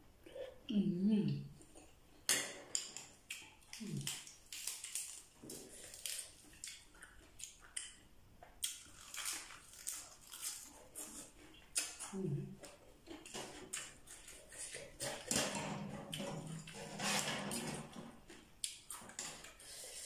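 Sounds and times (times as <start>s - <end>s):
low hum of voice: 0.7s - 1.6s, 12.1s - 12.6s
lettuce crunching: 2.7s - 8.0s, 8.6s - 20.0s
wet chewing: 2.8s - 15.4s, 18.3s - 20.0s.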